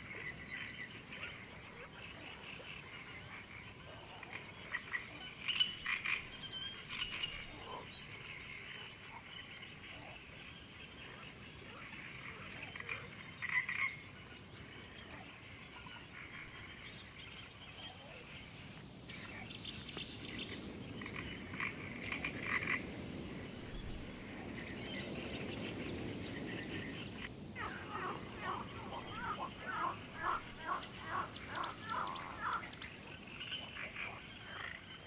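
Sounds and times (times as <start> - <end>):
frogs croaking: 0.0 - 35.0
steady high hiss: 0.0 - 35.0.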